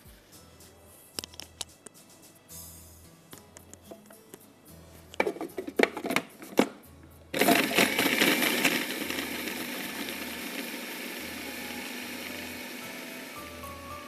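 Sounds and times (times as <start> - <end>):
knocks and clatters: 5.2 - 6.8
electric blender running: 7.4 - 14.0.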